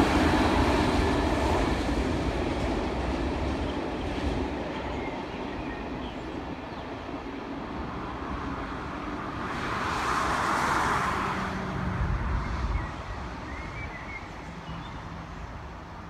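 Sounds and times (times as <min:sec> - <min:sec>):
freight train rumbling: 0:00.0 - 0:16.0
passing vehicle: 0:08.1 - 0:15.8.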